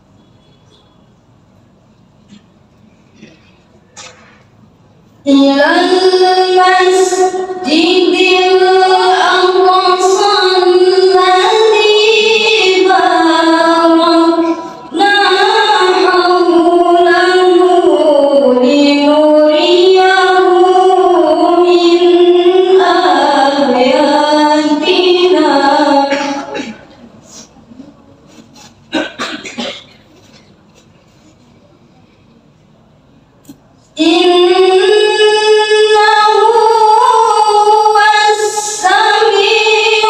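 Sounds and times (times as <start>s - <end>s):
woman chanting into a microphone: 5.2s - 28.0s, 33.9s - 40.0s.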